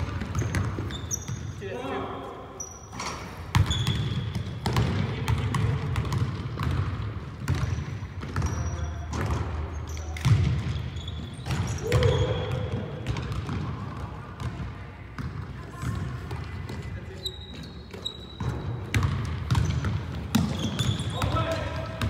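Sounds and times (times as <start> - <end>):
basketball bouncing on hardwood floor: 0.0 - 0.9, 3.5 - 9.5, 11.5 - 14.6, 18.4 - 22.0.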